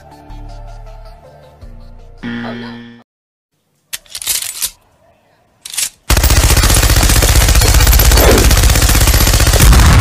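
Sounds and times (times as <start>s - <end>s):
machine gun firing: 6.1s - 10.0s.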